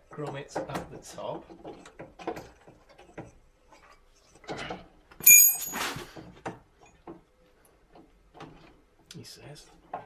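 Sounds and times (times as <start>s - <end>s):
sharp metallic clank: 5.2s - 6.0s
short metal rattle: 5.2s - 6.0s.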